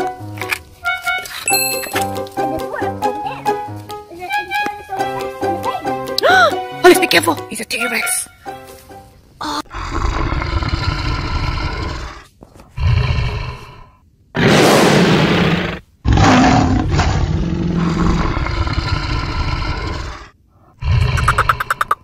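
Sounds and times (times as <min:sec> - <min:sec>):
dinosaur roaring: 0:09.7 - 0:22.0.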